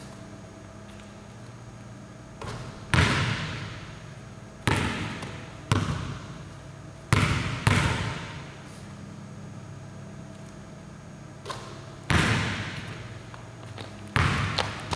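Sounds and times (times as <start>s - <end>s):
basketball bouncing on wooden floor: 2.4s - 3.8s, 4.7s - 6.4s, 7.1s - 8.4s, 11.5s - 14.9s.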